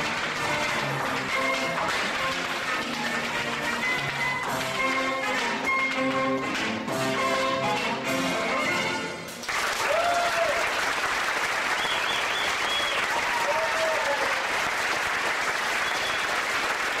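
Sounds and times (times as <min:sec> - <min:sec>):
audience applause: 0:00.0 - 0:06.9, 0:09.4 - 0:17.0
charleston music: 0:00.0 - 0:09.4
audience whooping: 0:09.7 - 0:11.0, 0:11.6 - 0:14.7, 0:15.6 - 0:16.5.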